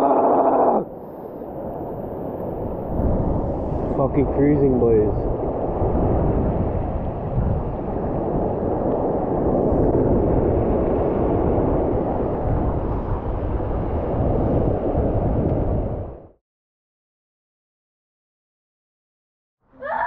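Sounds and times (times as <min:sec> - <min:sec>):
wind buffeting microphone: 0:00.0 - 0:16.4
surf washing over reef: 0:00.8 - 0:16.3.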